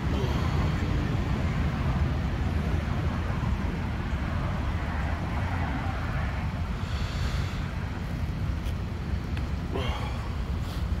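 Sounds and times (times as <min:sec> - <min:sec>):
street traffic rumble: 0:00.0 - 0:11.0
hiss: 0:06.8 - 0:07.8.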